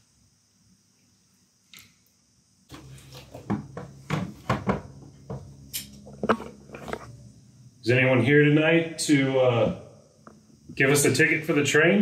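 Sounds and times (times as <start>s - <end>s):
low steady hum: 0.0s - 12.0s
irregular knocks and clatters: 2.7s - 7.1s.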